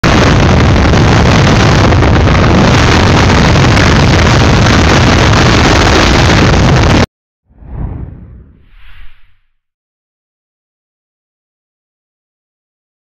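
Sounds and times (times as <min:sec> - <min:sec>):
wind rush over microphone: 0:00.0 - 0:09.6.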